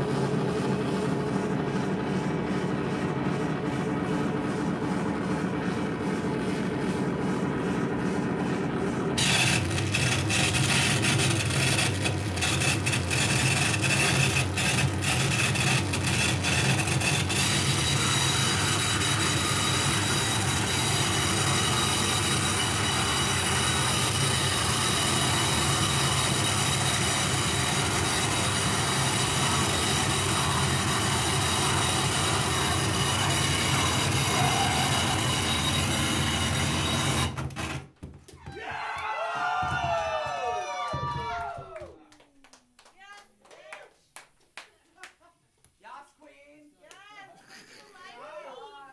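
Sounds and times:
harsh noise music: 29.3s - 36.9s.

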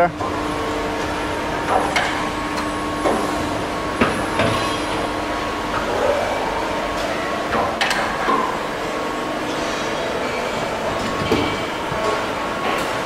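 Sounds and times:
machinery hum: 0.0s - 13.0s.

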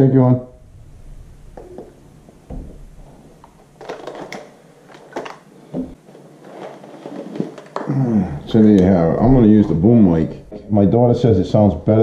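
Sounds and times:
helmet rustling and scraping: 4.9s - 7.8s.

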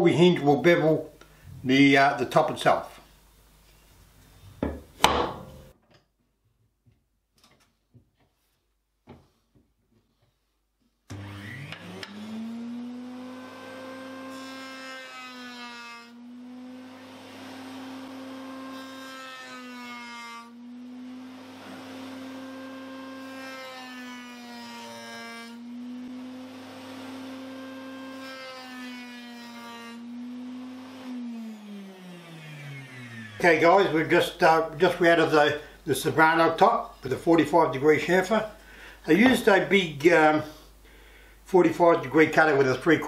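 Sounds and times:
router cutting wood: 11.1s - 38.4s.

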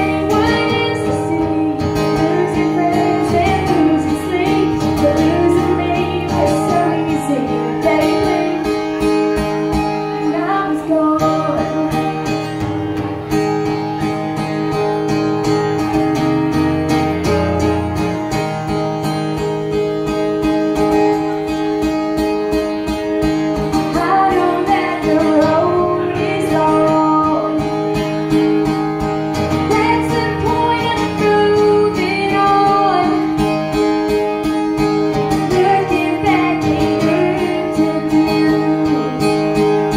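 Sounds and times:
woman singing: 0.0s - 8.9s, 10.1s - 12.3s, 23.8s - 27.7s, 29.5s - 33.8s, 35.1s - 39.9s
acoustic guitar: 0.0s - 39.9s.

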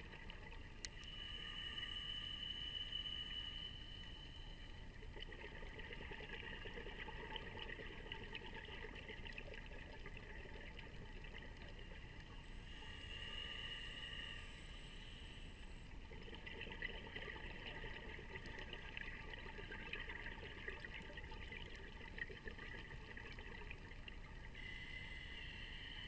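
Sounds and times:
bubbling exhaust underwater: 0.0s - 15.0s, 15.8s - 26.0s
diver inhaling through regulator: 12.6s - 15.9s, 24.6s - 26.0s.

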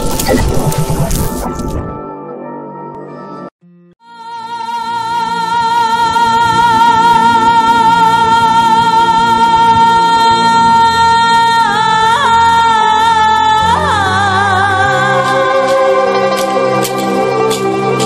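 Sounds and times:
person singing a long note: 4.0s - 16.3s.

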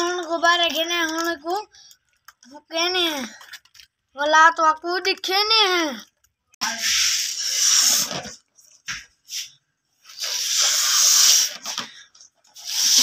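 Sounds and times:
child blowing up a balloon: 6.6s - 8.5s, 9.3s - 13.0s.

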